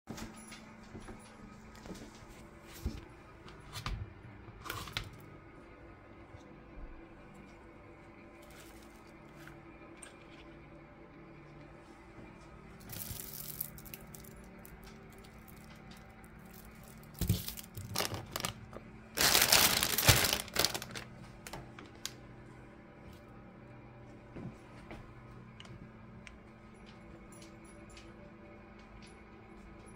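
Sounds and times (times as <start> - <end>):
plastic packaging crinkling: 12.8 - 22.2.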